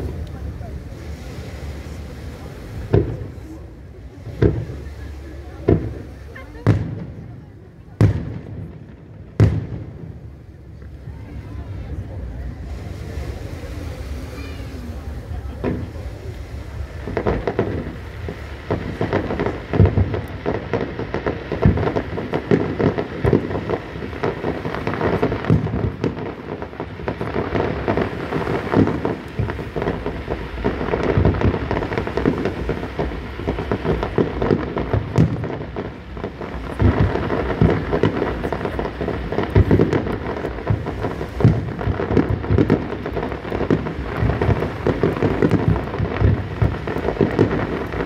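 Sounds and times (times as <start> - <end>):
firework shells bursting: 15.6 - 48.0.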